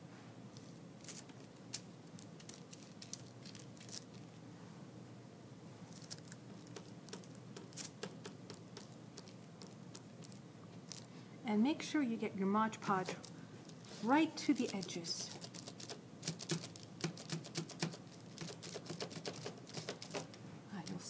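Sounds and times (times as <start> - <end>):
faint steady hum: 0.0 - 21.0
paintbrush on tissue paper: 13.8 - 15.9.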